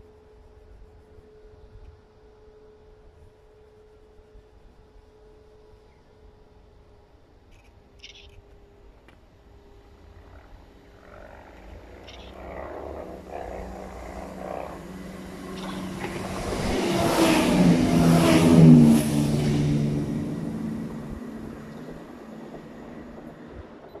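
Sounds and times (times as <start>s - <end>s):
passenger train passing: 8.8s - 24.0s.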